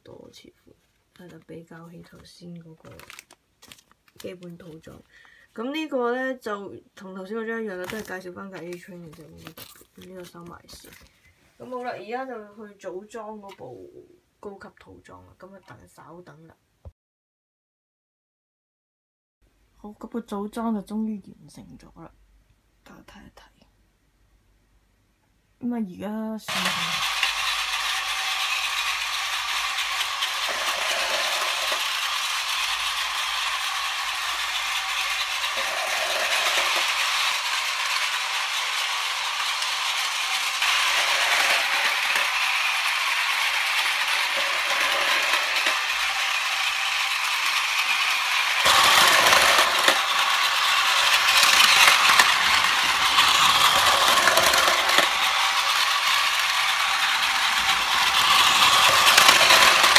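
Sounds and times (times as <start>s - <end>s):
toy train motors whirring: 2.2s - 5.0s, 7.2s - 11.9s, 26.4s - 59.9s
wheels rattling over plastic track: 7.7s - 11.1s, 26.5s - 59.9s.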